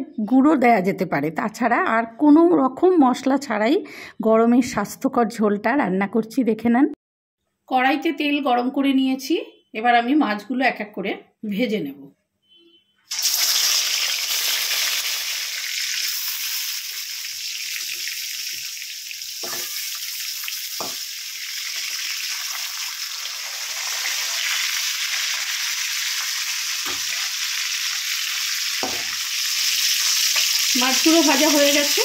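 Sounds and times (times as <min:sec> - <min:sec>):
fish sizzling in hot oil: 0:13.1 - 0:32.0
metal spatula knocking: 0:19.4 - 0:19.8, 0:20.8 - 0:21.0, 0:26.8 - 0:27.1, 0:28.8 - 0:29.2.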